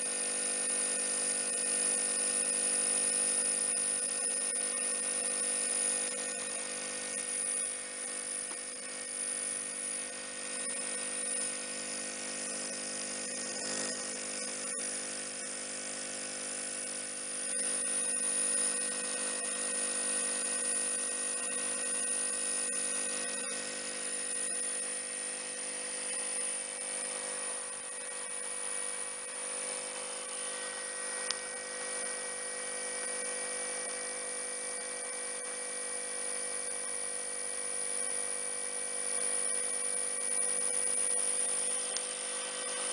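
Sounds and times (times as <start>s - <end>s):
electrical hum: 4.0s - 34.0s.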